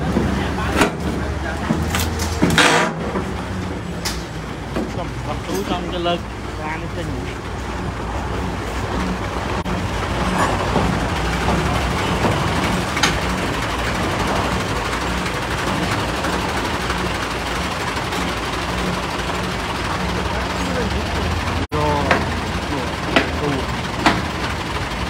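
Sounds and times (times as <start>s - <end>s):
heavy vehicle engine running: 0.0s - 25.0s
metal clank: 0.1s - 3.4s.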